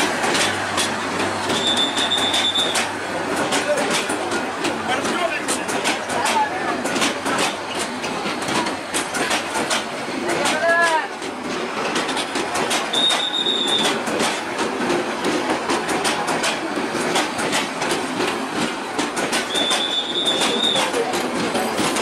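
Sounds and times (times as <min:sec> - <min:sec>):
wheels clicking over rail joints: 0:00.0 - 0:22.0
high wheel squeal: 0:01.5 - 0:02.9, 0:12.9 - 0:14.0, 0:19.5 - 0:21.0.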